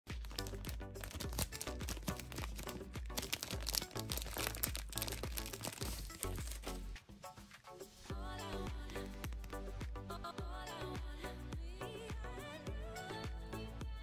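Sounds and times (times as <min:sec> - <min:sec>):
cellophane wrapper crinkling: 0:00.1 - 0:07.0, 0:08.8 - 0:09.7
background music with bass beat: 0:00.1 - 0:14.0.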